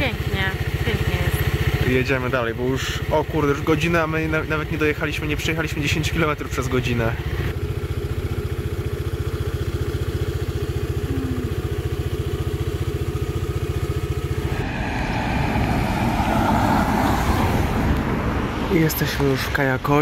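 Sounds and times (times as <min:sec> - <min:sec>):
motor scooter engine running: 0:00.0 - 0:14.6.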